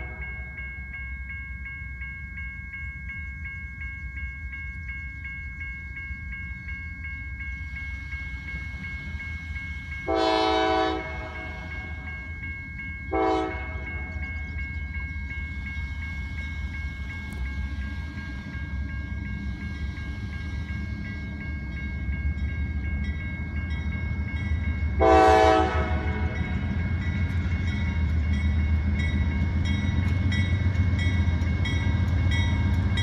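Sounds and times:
locomotive horn blasts: 0.0s - 0.5s, 10.0s - 12.0s, 13.1s - 14.2s, 25.0s - 26.5s
crossing bell ringing: 0.0s - 33.0s
low rumble of train: 0.0s - 33.0s.

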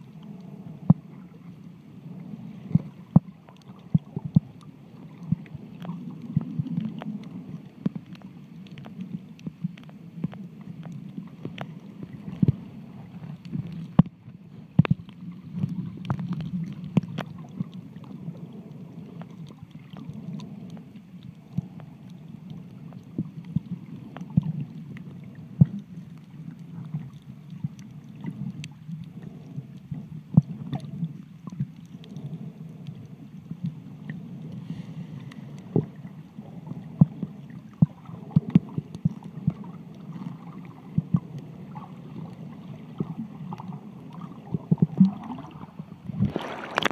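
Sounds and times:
muffled underwater water wash: 0.0s - 46.9s
sharp underwater clicks: 46.2s - 46.9s.

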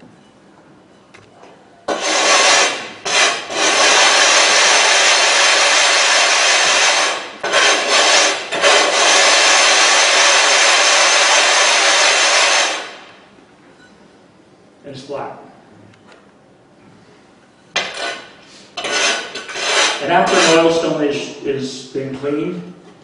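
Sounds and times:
sharpening stone grinding on plate: 17.8s - 20.8s.

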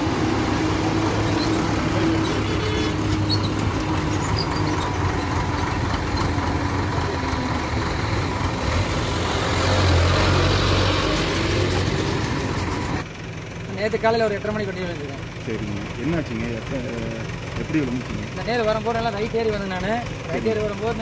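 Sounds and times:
diesel engine revving: 0.0s - 13.6s.

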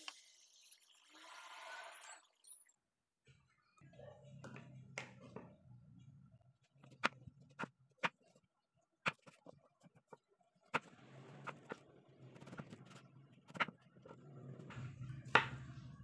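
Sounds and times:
knife chopping on wooden board: 15.3s - 15.6s.

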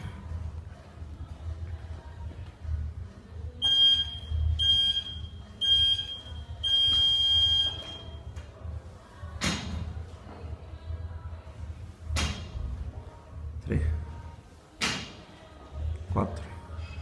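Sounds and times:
long timer beep: 3.6s - 8.2s
short countdown beeps: 3.6s - 8.2s.

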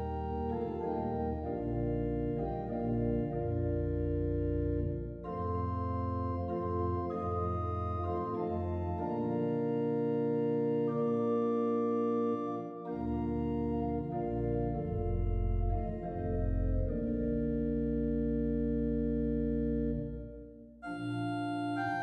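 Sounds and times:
bass line: 0.0s - 7.4s, 13.4s - 20.6s
organ chords: 0.0s - 22.0s.

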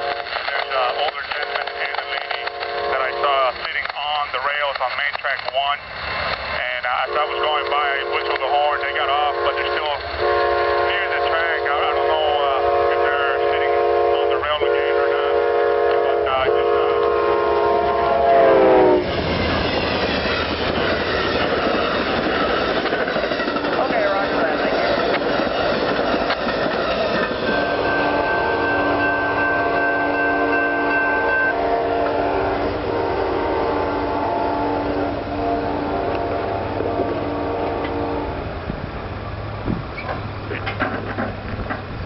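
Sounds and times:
train cars rumbling and clattering: 0.0s - 42.0s
locomotive horn chord: 1.4s - 3.3s, 7.0s - 8.4s, 9.0s - 19.1s, 27.6s - 38.5s.

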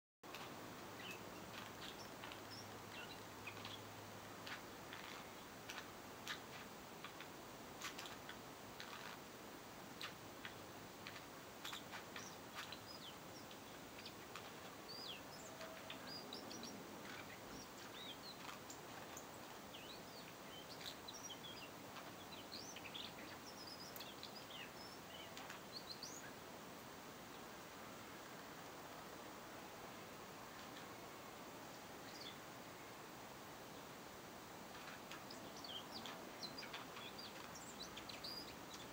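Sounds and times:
bird ticking calls: 0.3s - 9.2s, 10.0s - 26.4s, 34.7s - 38.9s
bird chirping chatter: 0.3s - 9.3s, 9.9s - 26.4s, 31.7s - 32.5s, 34.6s - 38.9s.

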